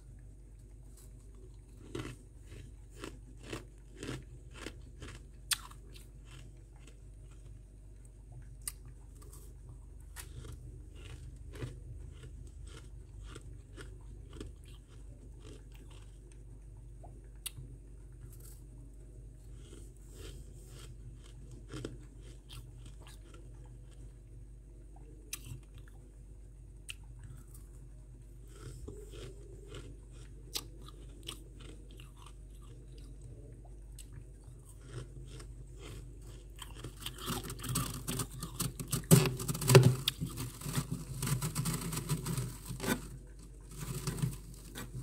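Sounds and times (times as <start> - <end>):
steady low hum: 0.0 - 45.0
freezer frost crunching: 0.6 - 8.0, 8.6 - 16.4, 19.5 - 24.1, 28.4 - 33.2, 34.0 - 45.0.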